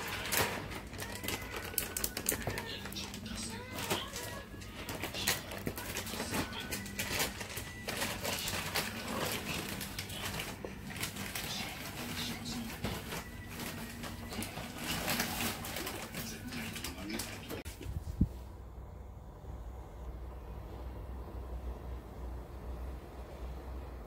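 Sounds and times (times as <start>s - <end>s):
low hum: 17.8s - 24.0s.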